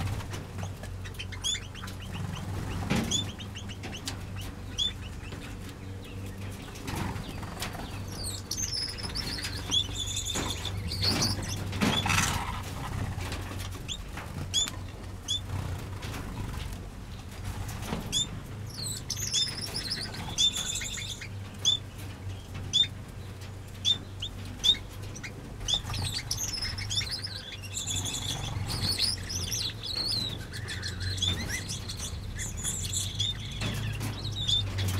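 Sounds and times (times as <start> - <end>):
birds chirping and twittering: 0.0 - 34.9.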